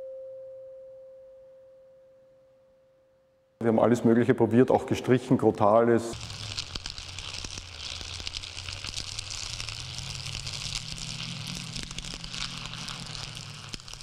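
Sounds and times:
straw broom crackling: 6.1 - 14.0.

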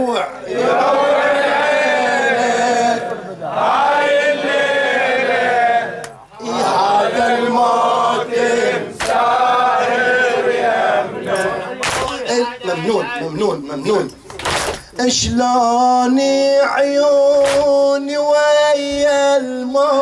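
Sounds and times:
man chanting a lament: 0.0 - 0.6, 6.3 - 7.8, 11.5 - 14.2, 14.9 - 20.0.

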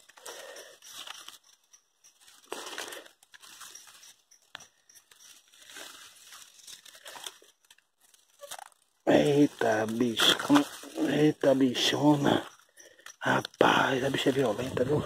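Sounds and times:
dry grass and leaves rustling: 0.0 - 15.0.

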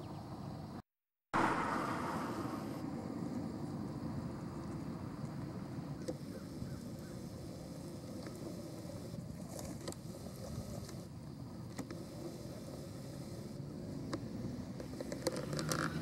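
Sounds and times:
car approaching: 1.4 - 8.8, 11.4 - 16.0
road traffic rumble: 1.4 - 16.0.

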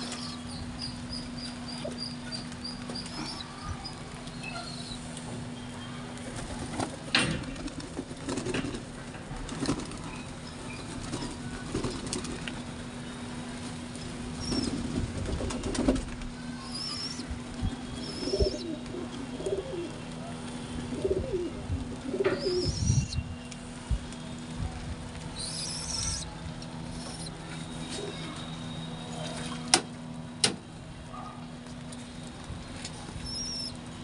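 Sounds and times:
pigeon wings flapping: 6.2 - 12.6, 14.4 - 16.4
pigeons cooing: 18.0 - 23.2
beaks pecking ground: 25.4 - 27.4.

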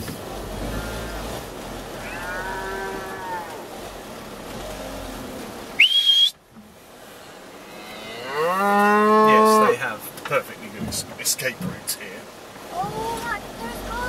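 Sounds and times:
van engine rumble: 0.0 - 7.7, 10.1 - 14.0
cattle mooing: 0.6 - 1.3, 1.9 - 3.8, 7.6 - 9.8.

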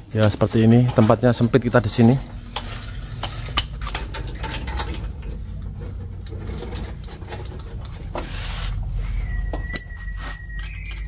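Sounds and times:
wrench clicking and scraping on metal: 0.2 - 8.1, 10.5 - 11.0
steady low rumble: 1.4 - 10.0.

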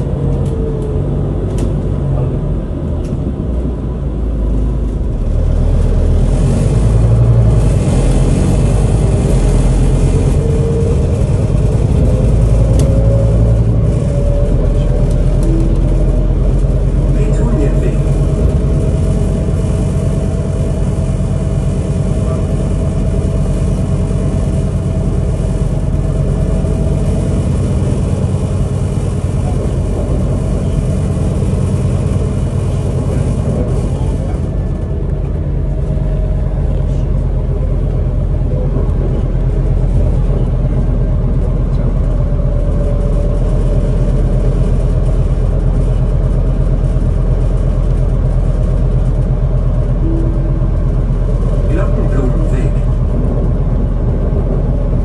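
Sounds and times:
bus engine drone: 0.0 - 55.0
road rumble: 0.0 - 55.0
faint steady whine: 41.7 - 55.0.

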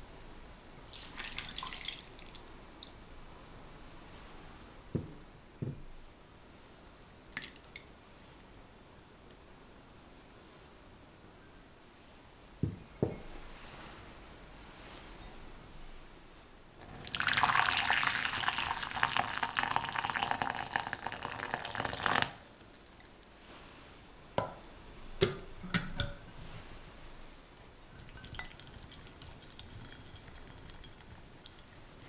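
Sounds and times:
water pouring into glass bowl: 0.9 - 2.9, 16.8 - 23.2, 27.9 - 32.0
glass bowls clinking: 25.2 - 26.3, 27.9 - 31.9.

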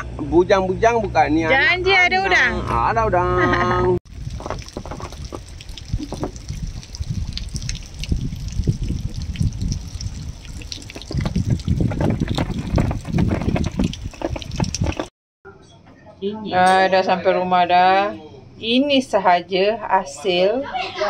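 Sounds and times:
water lapping against boat hull: 4.1 - 15.1.

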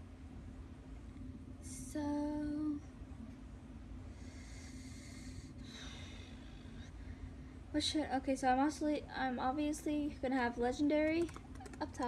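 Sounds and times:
low background hum: 0.0 - 12.0
soft breathing: 4.0 - 7.7.

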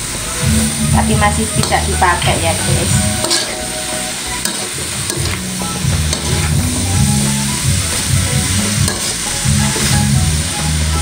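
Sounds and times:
beans sizzling in oil: 0.0 - 11.0
metal spatula scraping a wok: 1.6 - 10.2.

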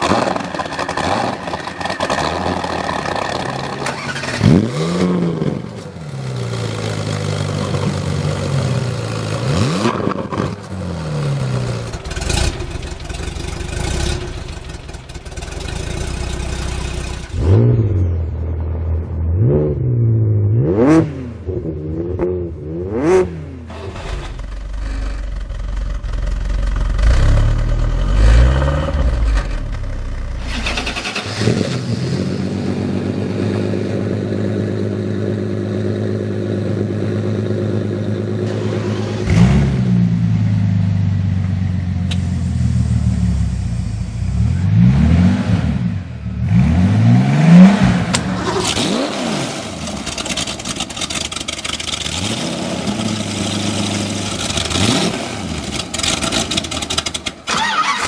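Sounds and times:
car engine revving: 0.0 - 58.0
car engine starting: 0.0 - 58.0
car engine idling: 10.6 - 17.6, 23.7 - 31.4, 32.1 - 44.7, 49.7 - 58.0.

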